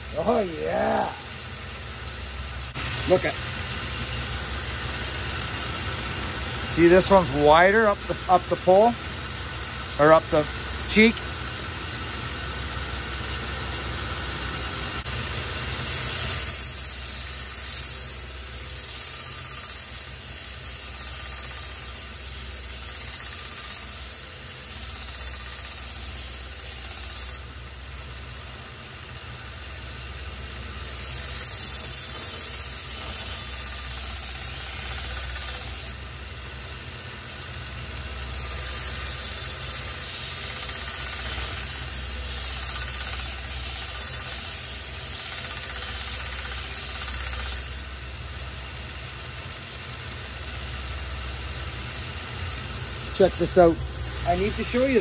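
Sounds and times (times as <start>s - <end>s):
steel grinding hiss: 6.7s - 9.0s, 15.5s - 27.5s, 30.6s - 36.0s, 38.1s - 48.0s, 52.8s - 55.0s
belt grinder motor hum: 30.8s - 36.0s, 38.2s - 47.8s.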